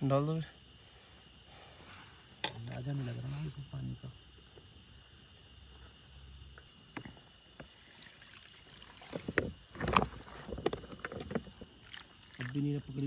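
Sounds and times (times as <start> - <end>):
water splashing into plastic bowl: 11.8 - 12.6.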